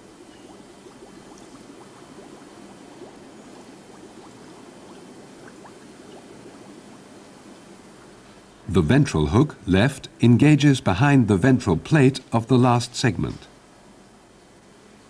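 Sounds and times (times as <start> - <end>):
gas bubbling through water: 0.0 - 7.5.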